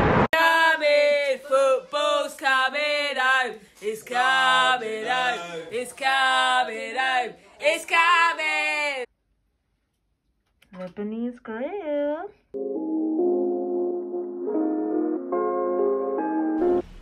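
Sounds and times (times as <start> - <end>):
man singing: 0.3 - 9.1.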